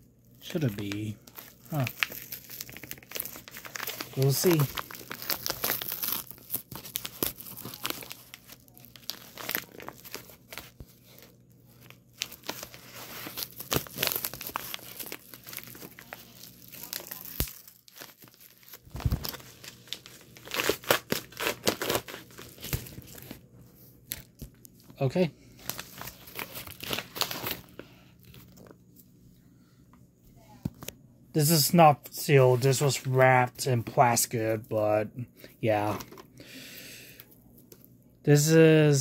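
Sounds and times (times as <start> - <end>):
plastic wrapping crinkling and tearing: 0.2 - 28.8.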